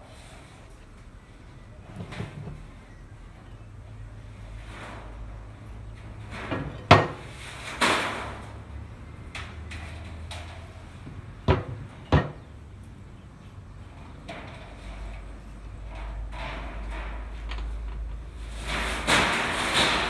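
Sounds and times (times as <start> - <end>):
scraping rattle: 14.0 - 20.0.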